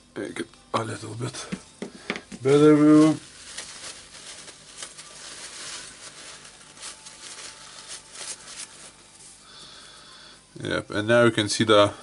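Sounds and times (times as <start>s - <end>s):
rag rustling and rubbing: 2.4s - 9.4s.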